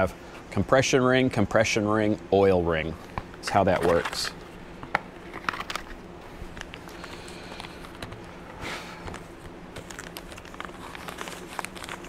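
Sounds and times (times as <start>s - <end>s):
steady low hum: 0.0s - 12.0s
paper rustling: 9.0s - 12.0s.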